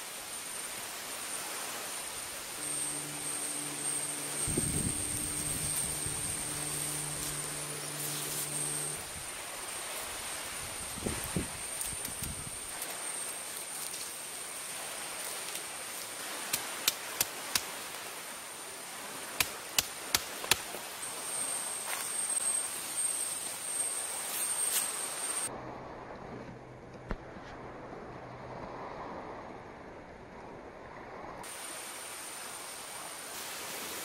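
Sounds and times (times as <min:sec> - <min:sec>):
steady hiss: 0:00.0 - 0:25.5, 0:31.4 - 0:34.0
high thin whine: 0:00.3 - 0:16.8, 0:19.6 - 0:25.5
low hum: 0:02.1 - 0:10.8.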